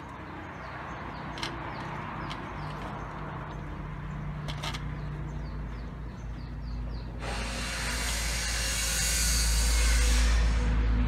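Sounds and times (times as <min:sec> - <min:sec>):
bird chirping: 0:00.0 - 0:07.9.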